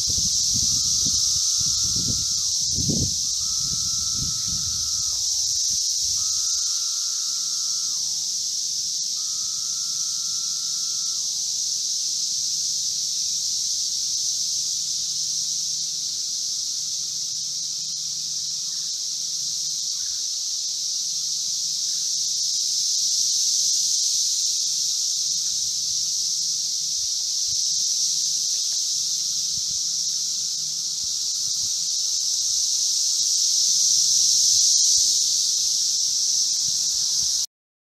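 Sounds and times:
cicadas chorusing: 0:00.0 - 0:37.5
lower cicada calls dropping in pitch: 0:00.0 - 0:37.5.

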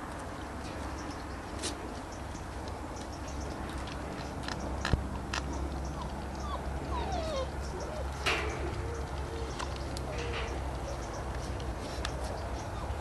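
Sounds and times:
puppy whining: 0:05.4 - 0:11.2, 0:12.6 - 0:13.0.

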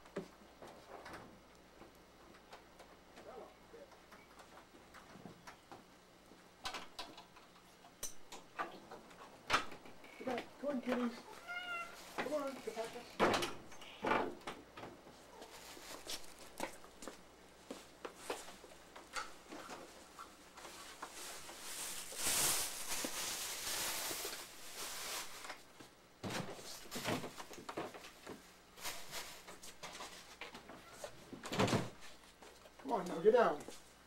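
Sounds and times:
clothing rustling: 0:15.3 - 0:18.5, 0:19.6 - 0:25.6.

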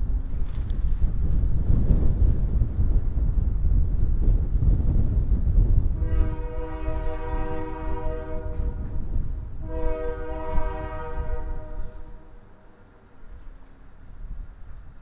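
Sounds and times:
wind buffeting microphone: 0:00.0 - 0:12.5, 0:13.2 - 0:15.0
locomotive horn blasts: 0:06.0 - 0:08.9, 0:09.6 - 0:12.4.

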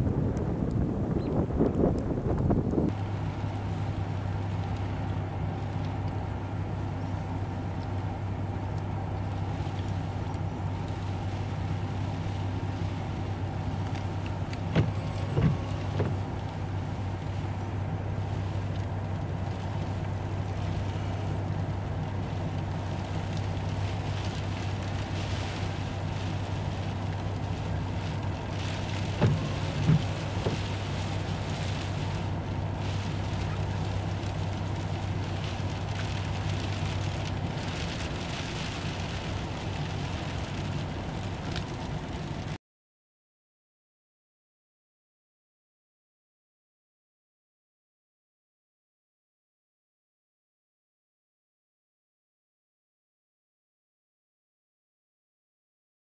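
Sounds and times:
car engine and road hum: 0:00.0 - 0:42.6
rain and snow on windshield: 0:00.0 - 0:42.6.

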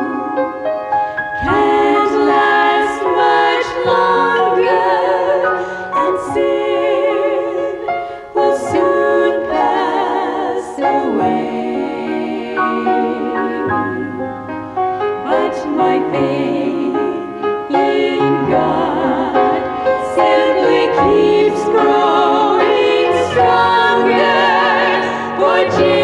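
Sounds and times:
women singing in harmony: 0:00.0 - 0:26.0
singers breathing: 0:01.0 - 0:01.3, 0:05.5 - 0:06.0, 0:07.9 - 0:08.4, 0:25.0 - 0:25.4.

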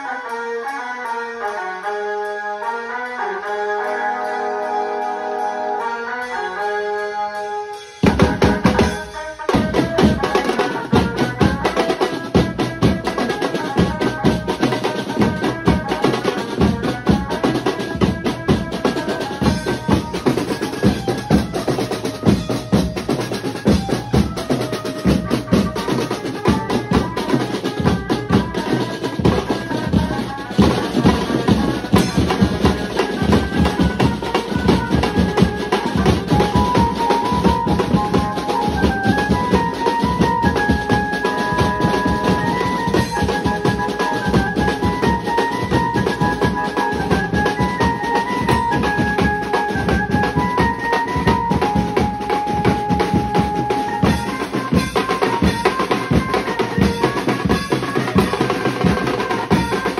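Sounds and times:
amplified banjo melody: 0:00.0 - 0:24.4
fast drum beat: 0:08.0 - 0:59.9.

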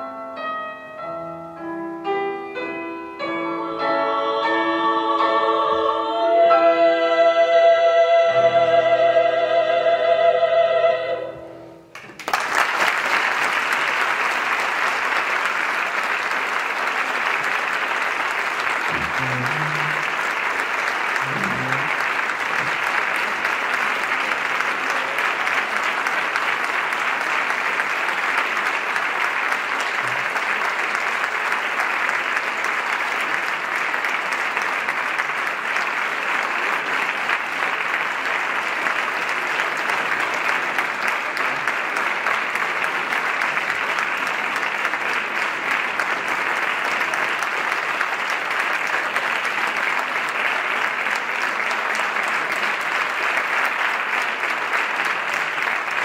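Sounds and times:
audience applause: 0:11.9 - 0:56.0.

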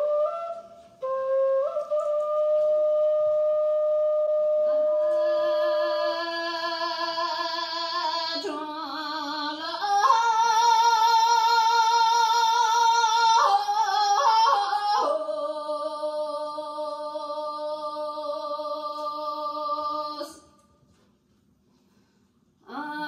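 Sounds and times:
wooden flute held note: 0:00.0 - 0:05.4
woman singing unaccompanied: 0:04.6 - 0:20.5, 0:22.6 - 0:23.0.

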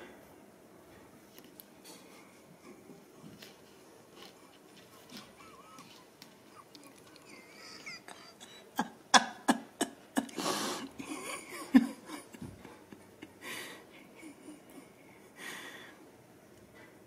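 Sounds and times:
kitten hissing: 0:10.4 - 0:11.0.

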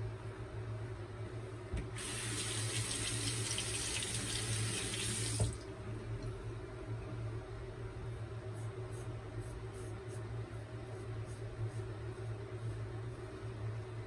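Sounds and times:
tap water running into a basin: 0:02.0 - 0:05.6.

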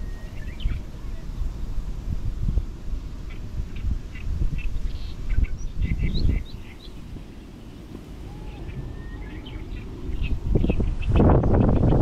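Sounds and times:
small birds chirping: 0:00.0 - 0:01.8, 0:02.6 - 0:12.0
wind rumbling on microphone: 0:00.0 - 0:12.0.

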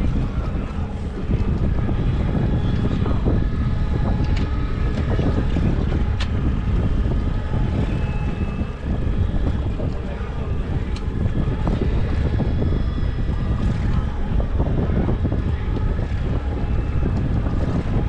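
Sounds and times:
outboard motor droning: 0:00.0 - 0:18.0
wind buffeting microphone: 0:00.0 - 0:18.0.

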